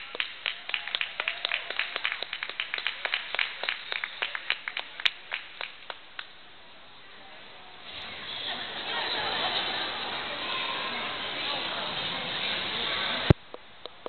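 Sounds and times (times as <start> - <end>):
audience clapping: 0.0 - 6.3.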